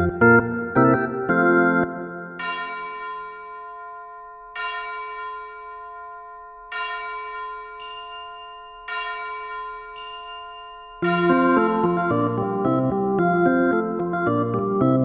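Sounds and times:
bell-like tone ringing: 0:02.2 - 0:13.6
high shimmering chime: 0:02.4 - 0:12.4.

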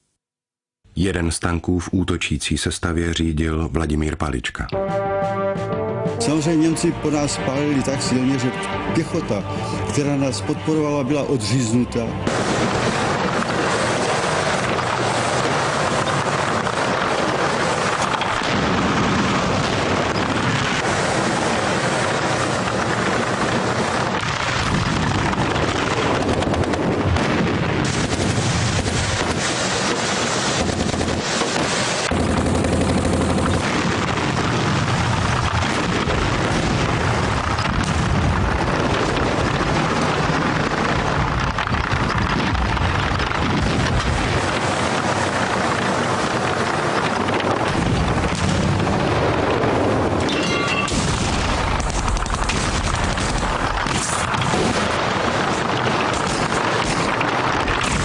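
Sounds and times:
tank engine running: 0:12.2 - 0:58.0
machine-gun and rifle fire: 0:12.3 - 0:58.0.

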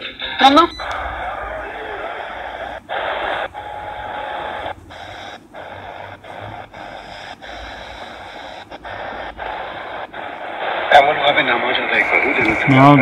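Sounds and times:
radio static hiss: 0:00.0 - 0:13.0.

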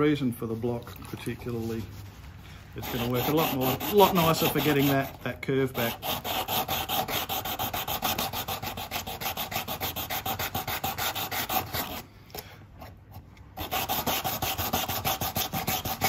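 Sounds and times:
sandpaper rubbing back and forth: 0:02.8 - 0:12.0, 0:13.6 - 0:16.0.

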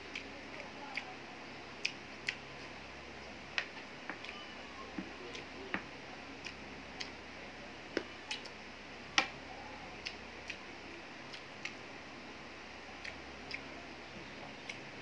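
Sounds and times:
fingers mixing rice on a plate: 0:00.0 - 0:02.8, 0:03.5 - 0:07.3, 0:09.2 - 0:11.9
chewing smacks: 0:01.8 - 0:02.4.

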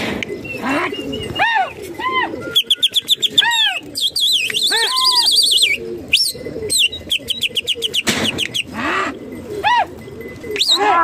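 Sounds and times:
small birds chirping: 0:00.3 - 0:08.8.

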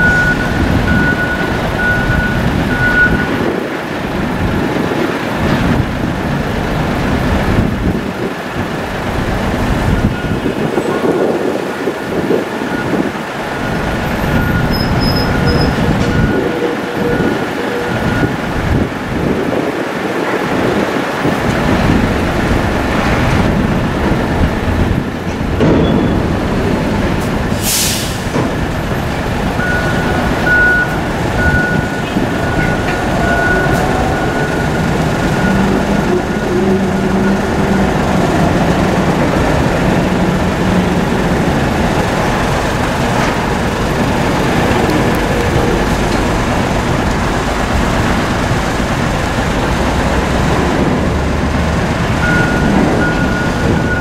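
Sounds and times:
heavy diesel engines rumbling: 0:00.0 - 0:54.0
air brake hiss: 0:27.5 - 0:28.3.

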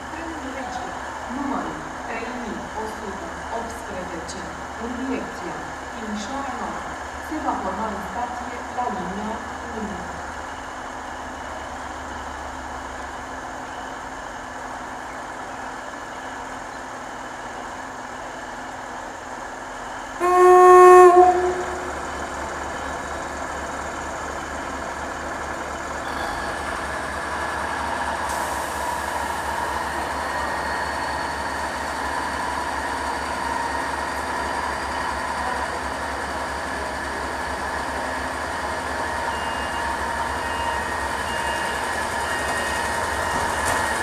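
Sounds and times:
diesel engine running: 0:00.0 - 0:44.0
train horn blast: 0:20.2 - 0:22.2.

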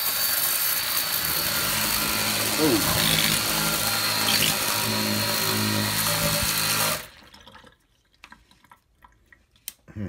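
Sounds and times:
electric pump motor humming: 0:00.2 - 0:07.2.

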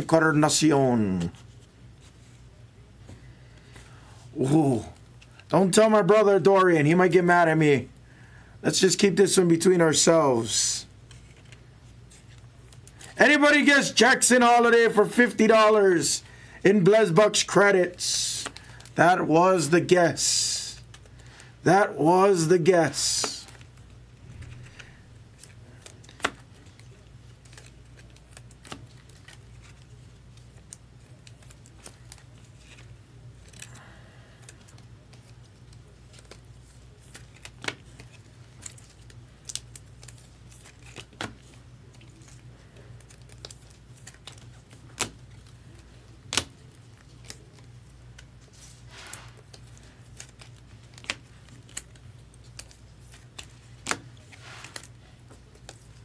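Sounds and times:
low steady hum: 0:00.0 - 0:56.0
soft rustles: 0:52.6 - 0:56.0.

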